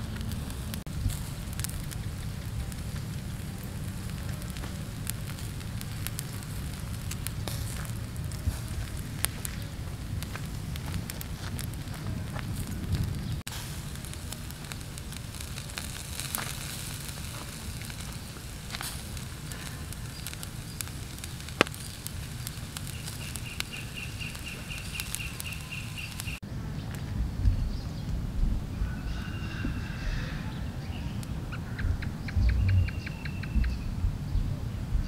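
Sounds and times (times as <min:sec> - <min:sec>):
meat sizzling on a grill: 0:00.0 - 0:26.4
crackles and pops: 0:00.0 - 0:28.8.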